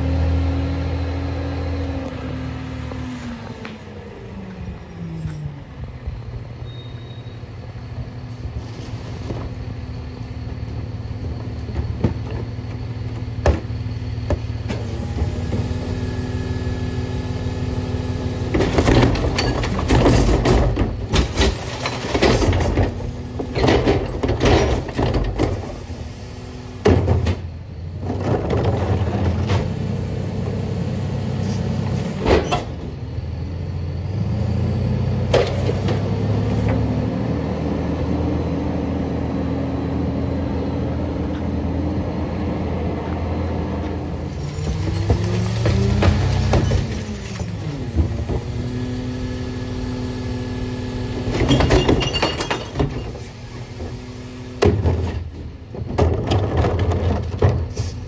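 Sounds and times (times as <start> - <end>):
recycling clattering into hopper: 18.3 - 26.0, 26.8 - 30.0, 43.9 - 48.8, 51.2 - 58.0.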